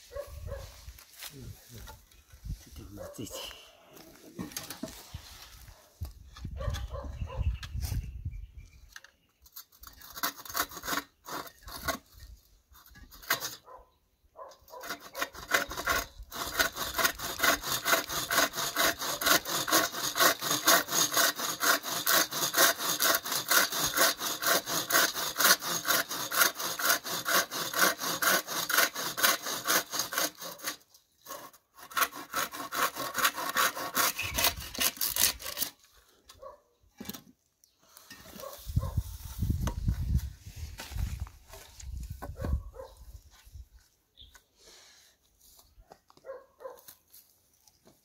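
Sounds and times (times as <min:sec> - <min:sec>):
hand saw sawing wood: 0:09.6 - 0:13.8, 0:14.6 - 0:35.9.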